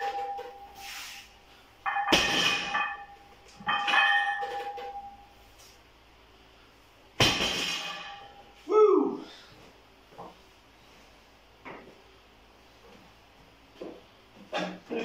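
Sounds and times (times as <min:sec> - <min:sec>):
weight plates ringing: 0:00.0 - 0:00.8, 0:01.8 - 0:05.4, 0:07.2 - 0:08.6
barbell clanking: 0:01.9 - 0:05.2, 0:07.2 - 0:08.4.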